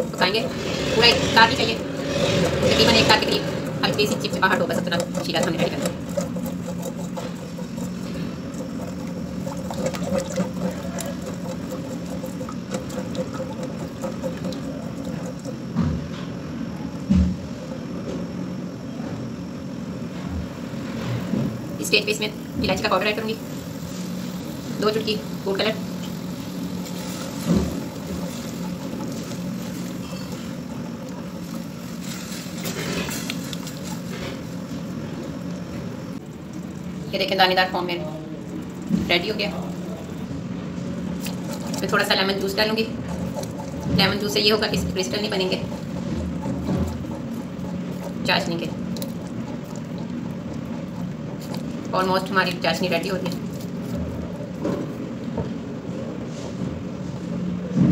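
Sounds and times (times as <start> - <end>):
spatula stirring in a steel pan: 0.0 - 15.8, 40.9 - 55.2
syrup boiling in a pot: 0.0 - 57.6
steady low hum: 0.0 - 57.9.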